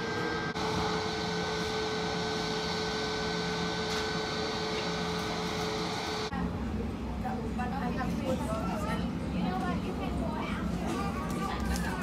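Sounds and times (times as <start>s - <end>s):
jet engines idling: 0.0s - 7.2s.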